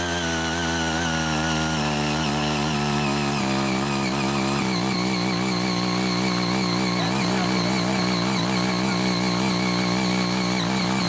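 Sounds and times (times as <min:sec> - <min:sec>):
tiller engine running hard: 0:00.0 - 0:11.0.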